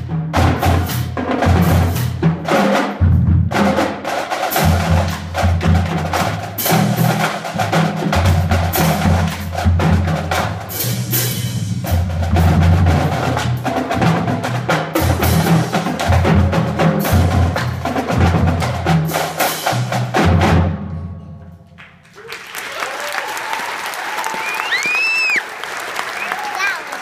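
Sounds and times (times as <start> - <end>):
bass drums: 0.0 - 21.2
snare drums: 0.0 - 23.6, 24.2 - 27.0
audience applauding: 21.8 - 27.0.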